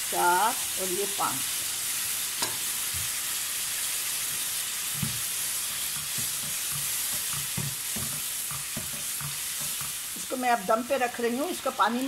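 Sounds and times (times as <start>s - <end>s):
food sizzling in a frying pan: 0.0s - 12.0s
spoon knocking against pan: 5.0s - 10.0s.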